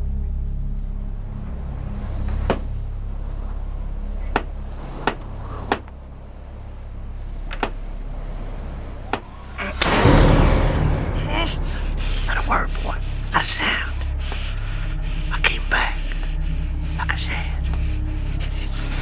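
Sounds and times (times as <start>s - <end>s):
steady low rumble: 0.0s - 19.0s
sharp knocks: 4.3s - 5.9s, 7.5s - 7.8s.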